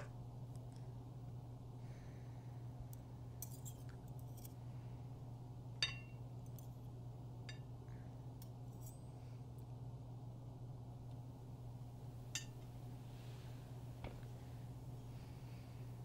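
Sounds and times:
steady low hum: 0:00.0 - 0:16.0
cutlery clinking on ceramic bowl: 0:05.8 - 0:06.2.

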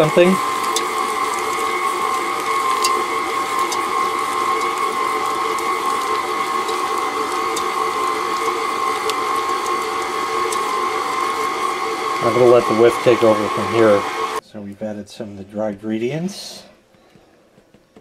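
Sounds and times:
stand mixer motor whining: 0:00.0 - 0:14.4.

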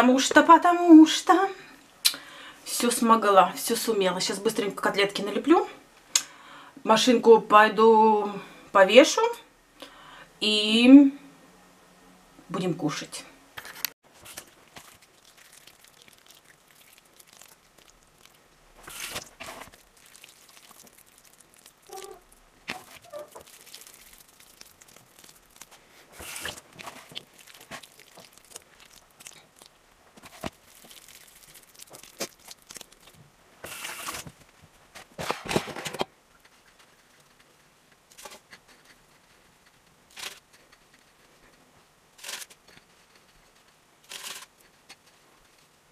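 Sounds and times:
wet squishes of minced meat: 0:14.2 - 0:34.3.

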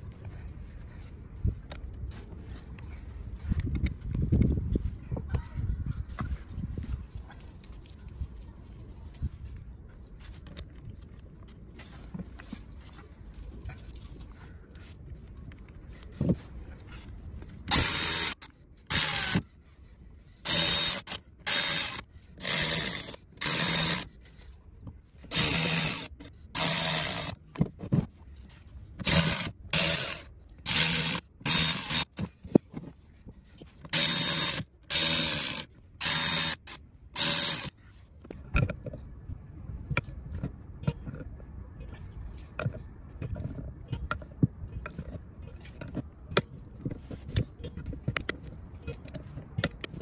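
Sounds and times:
ratchet wrench clicking: 0:17.7 - 0:19.4, 0:20.5 - 0:24.1, 0:25.3 - 0:27.4, 0:29.0 - 0:32.2, 0:33.9 - 0:37.7.

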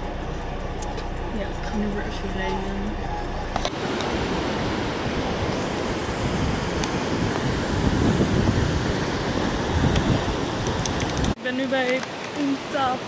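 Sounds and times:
wind buffeting microphone: 0:00.0 - 0:13.0
surf breaking on shore: 0:03.6 - 0:13.0.

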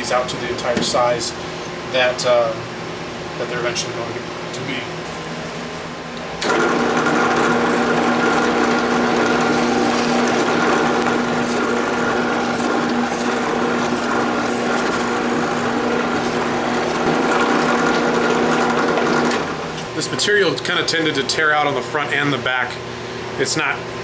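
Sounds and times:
drill press drilling wood: 0:06.4 - 0:19.6.

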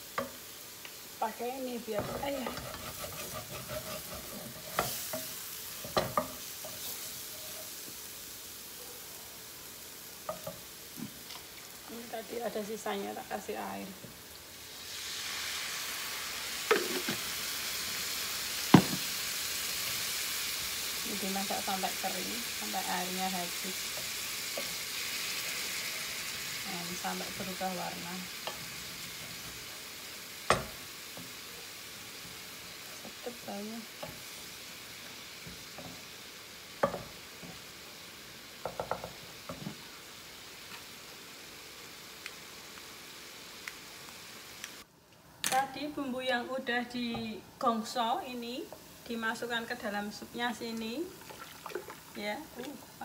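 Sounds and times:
paste sizzling in frying pan: 0:00.0 - 0:44.9, 0:45.7 - 0:53.0
wooden spatulas knocking on pan: 0:38.6 - 0:39.2
water pouring: 0:51.2 - 0:52.2.

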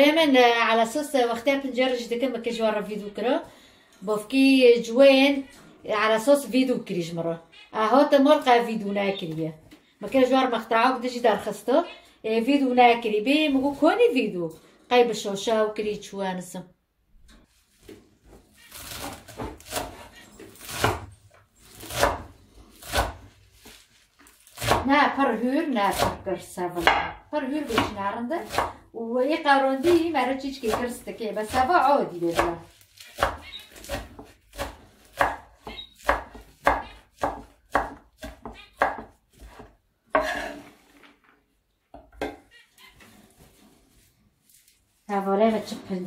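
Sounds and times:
knife chopping on wooden board: 0:18.9 - 0:21.1, 0:21.8 - 0:23.3, 0:24.6 - 0:24.9, 0:26.8 - 0:28.8, 0:29.8 - 0:31.7, 0:32.3 - 0:40.6.

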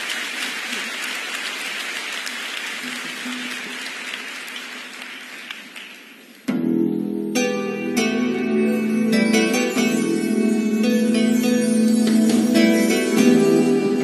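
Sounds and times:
audience applauding: 0:00.0 - 0:06.4
band music with plucked strings: 0:06.5 - 0:14.0.

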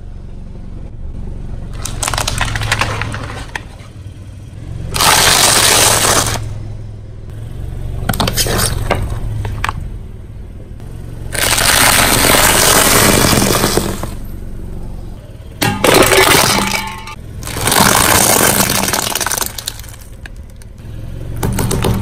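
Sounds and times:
low engine hum: 0:00.0 - 0:22.0
tyre crunching crackers: 0:01.7 - 0:03.8, 0:04.9 - 0:06.5, 0:11.3 - 0:14.2, 0:15.8 - 0:20.8.

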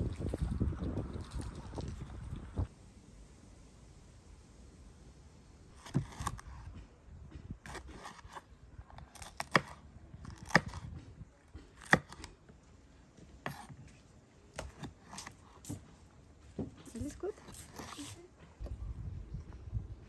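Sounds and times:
knife cutting pepper: 0:05.8 - 0:06.8, 0:07.6 - 0:08.4, 0:09.0 - 0:11.0, 0:11.6 - 0:12.4, 0:13.4 - 0:13.8, 0:14.6 - 0:15.8, 0:16.9 - 0:18.2.

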